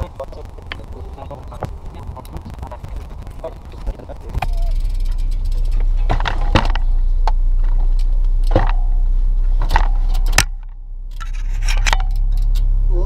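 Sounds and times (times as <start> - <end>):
bikes rattling and clanking: 0.0 - 13.0
low rumble of moving car: 0.0 - 13.0.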